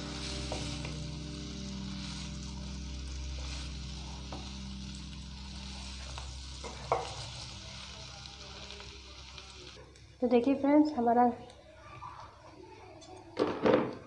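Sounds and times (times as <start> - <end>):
potato sizzling in oil: 0.0 - 9.9
low steady hum: 0.0 - 10.2.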